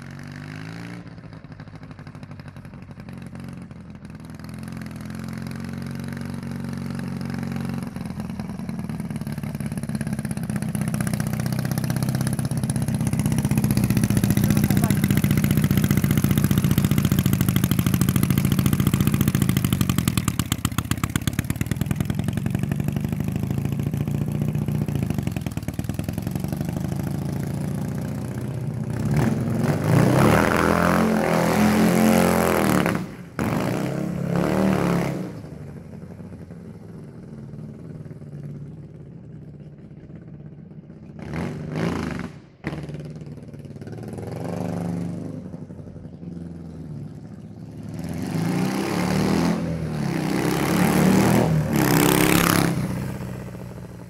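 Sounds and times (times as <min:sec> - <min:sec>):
go-kart engine revving: 0:00.0 - 0:39.0, 0:40.9 - 0:54.0.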